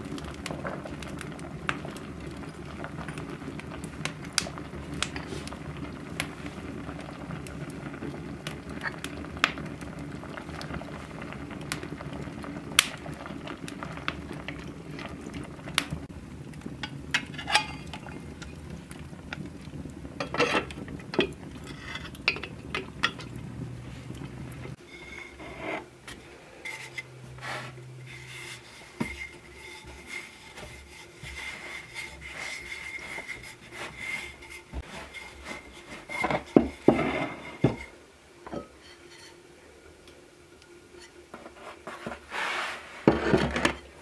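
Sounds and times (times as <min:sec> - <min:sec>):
wood fire crackling and popping: 0:00.0 - 0:38.0
soup bubbling in a pot: 0:00.0 - 0:44.0
metal pots knocking: 0:16.8 - 0:18.6, 0:20.2 - 0:23.5.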